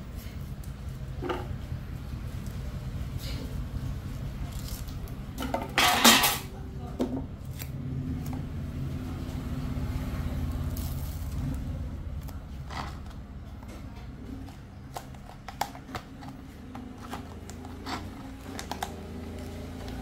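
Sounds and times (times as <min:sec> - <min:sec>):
tape backing crackling as peeled: 0:14.4 - 0:20.0.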